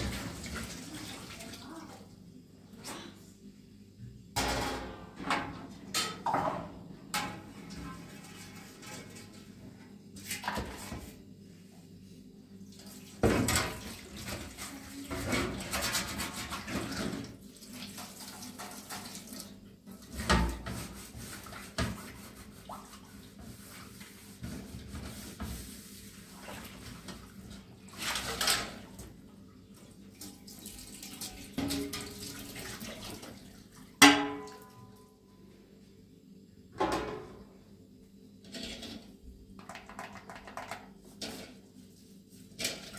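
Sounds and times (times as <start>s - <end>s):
tap water running and splashing: 0.0s - 1.9s, 12.8s - 33.8s.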